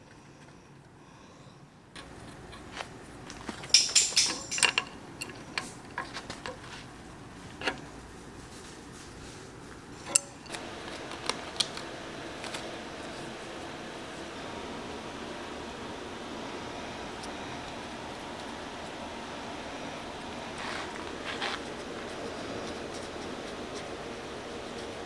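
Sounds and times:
steady background hum: 0:00.0 - 0:25.0
steel tools clanking on steel bar: 0:03.6 - 0:05.4.

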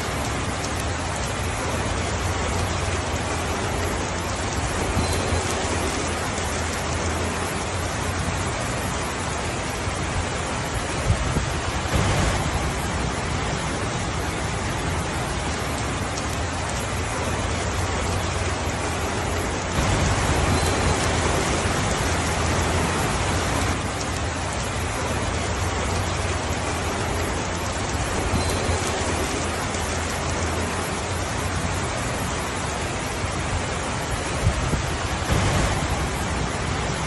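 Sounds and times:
steady rainfall: 0:00.0 - 0:37.0.

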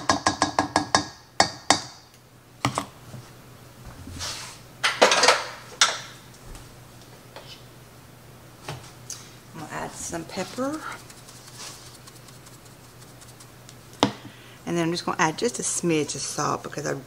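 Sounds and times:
kitchen items clattering on counter: 0:04.9 - 0:06.2.

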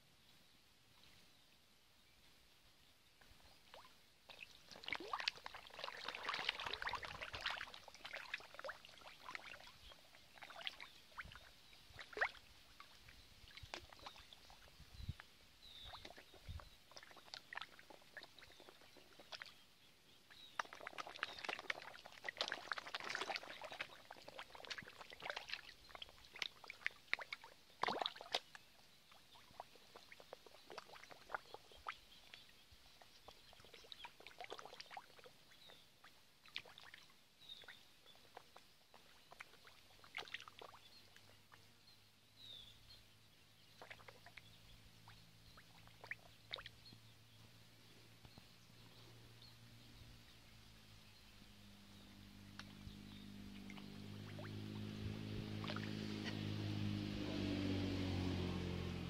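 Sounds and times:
fish splashing at water surface: 0:03.7 - 0:09.7, 0:10.3 - 0:14.6, 0:20.4 - 0:28.6, 0:43.8 - 0:44.4, 0:52.2 - 0:59.0.

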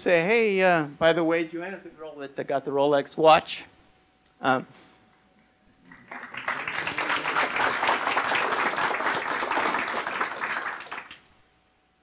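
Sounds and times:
audience applauding: 0:05.8 - 0:11.3.

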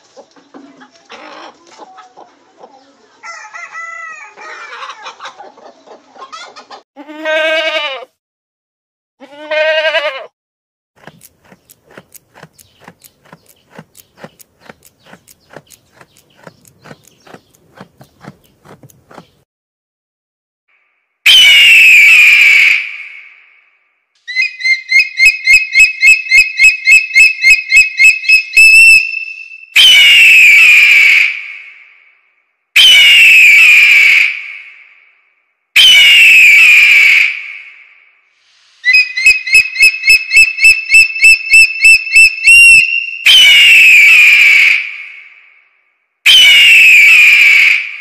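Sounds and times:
bird of prey harsh scream: 0:21.3 - 0:23.4, 0:24.3 - 0:32.0, 0:32.8 - 0:34.9, 0:35.8 - 0:37.9, 0:38.8 - 0:45.4, 0:46.3 - 0:48.0
bird of prey hoarse scream: 0:21.3 - 0:23.4, 0:38.8 - 0:45.4, 0:46.3 - 0:48.0
bird of prey piping whistles: 0:24.3 - 0:30.7, 0:38.8 - 0:44.9, 0:46.3 - 0:47.9
rapid high piping calls: 0:38.8 - 0:43.5.

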